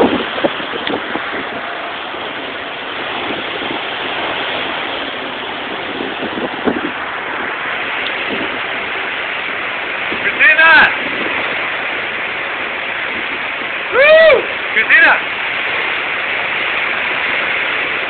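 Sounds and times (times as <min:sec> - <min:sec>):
heavy rain: 0:00.0 - 0:18.0
hurricane wind: 0:00.0 - 0:18.0.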